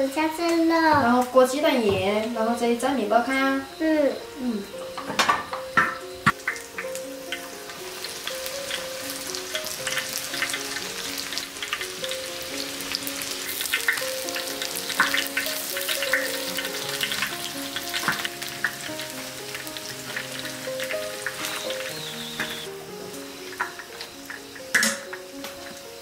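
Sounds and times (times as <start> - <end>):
oil sizzling and crackling: 0.0 - 26.0.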